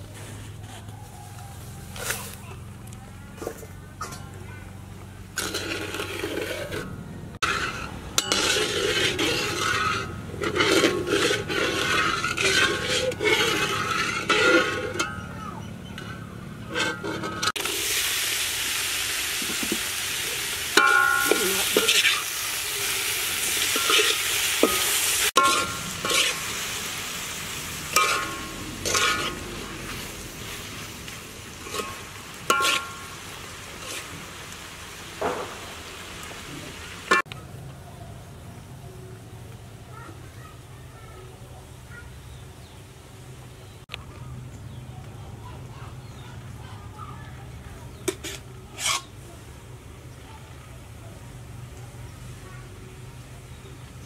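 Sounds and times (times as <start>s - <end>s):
sizzling in sugar syrup: 0.0s - 44.0s, 44.6s - 54.0s
metal spatula scraping wok: 5.0s - 18.0s, 18.8s - 36.0s, 37.1s - 37.3s, 47.9s - 49.3s
spatula clinking against wok: 7.4s - 17.5s, 20.8s - 22.3s, 23.6s - 26.4s, 27.9s - 29.4s, 31.6s - 33.2s.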